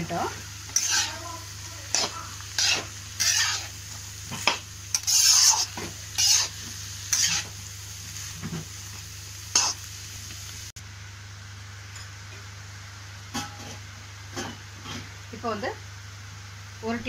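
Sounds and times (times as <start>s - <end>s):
faint sizzle of vegetables: 0.0s - 17.0s
steel spatula scraping a pan: 0.7s - 1.2s, 1.9s - 7.6s.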